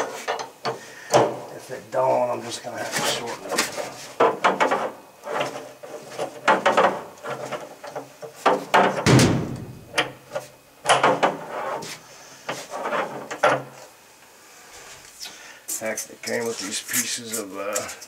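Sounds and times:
metal knocks clanks and scrapes: 2.9 - 13.8.

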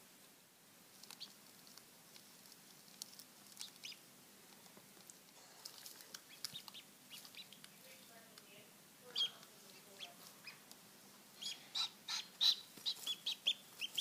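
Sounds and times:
duckling peeping: 1.0 - 1.9, 2.9 - 4.1, 5.6 - 8.4, 9.0 - 14.0.

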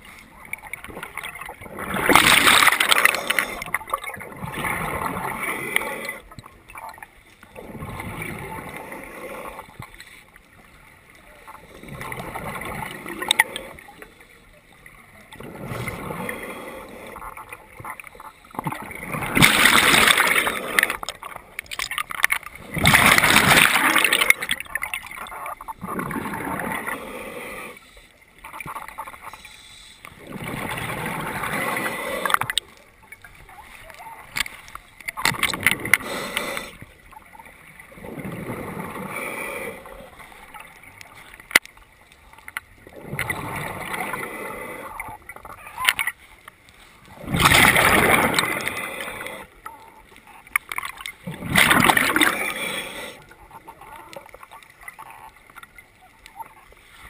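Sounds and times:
bubbles gurgling underwater: 0.0 - 7.0, 17.3 - 27.0, 42.8 - 46.0, 47.1 - 49.4, 50.9 - 55.4
diver breathing through regulator: 2.4 - 3.8, 15.4 - 17.4, 26.3 - 28.2, 29.2 - 32.6, 35.8 - 36.9, 38.4 - 40.2, 48.3 - 49.6, 51.6 - 53.4.

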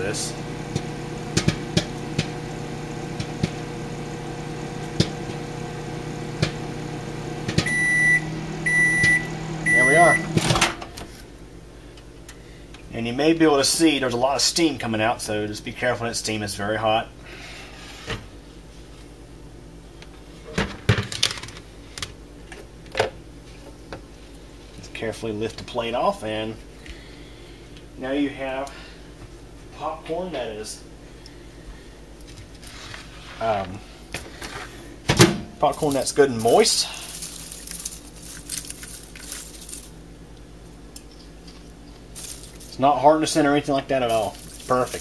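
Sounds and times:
popcorn popping: 0.0 - 7.9, 35.1 - 39.9, 44.1 - 45.0
microwave oven humming: 0.0 - 12.8
microwave low hum: 0.0 - 45.0
microwave beep: 6.4 - 10.6.

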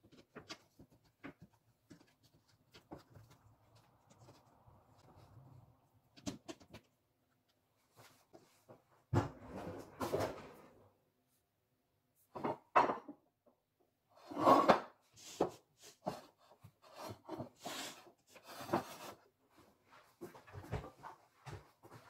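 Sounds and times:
kitchenware knocking on a counter: 12.4 - 13.2.

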